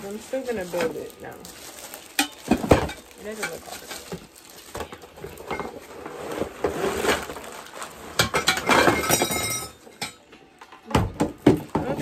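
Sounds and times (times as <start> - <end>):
metal tubes clattering: 8.1 - 10.2.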